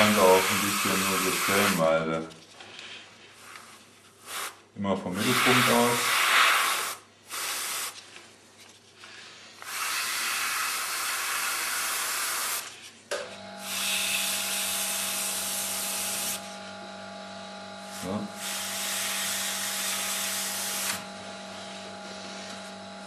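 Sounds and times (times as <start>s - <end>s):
airbrush spraying hiss: 0.0s - 1.8s, 5.2s - 8.0s.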